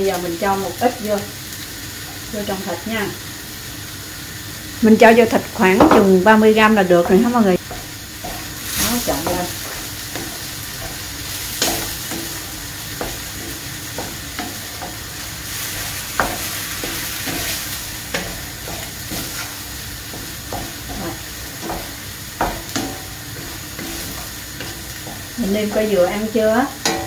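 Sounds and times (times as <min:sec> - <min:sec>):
meat sizzling in a frying pan: 0:00.0 - 0:27.0
spatula knocking and scraping pan: 0:05.6 - 0:27.0.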